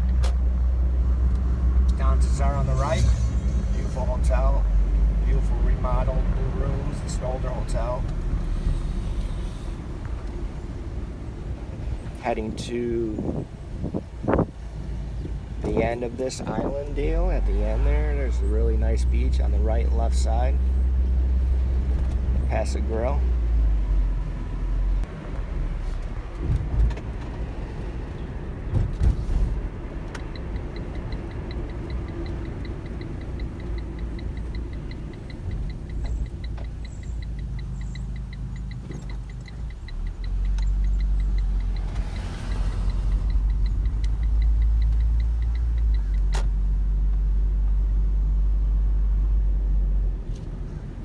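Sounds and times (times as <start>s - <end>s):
car engine and road rumble: 0.0s - 51.0s
fast high ticking: 30.3s - 46.2s.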